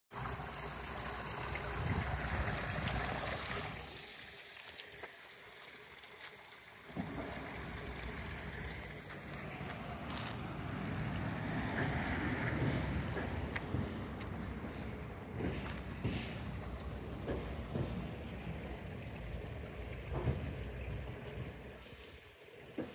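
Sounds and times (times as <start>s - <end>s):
water trickling: 0.1s - 12.8s, 17.1s - 22.9s
wind rumbling on microphone: 1.6s - 3.8s.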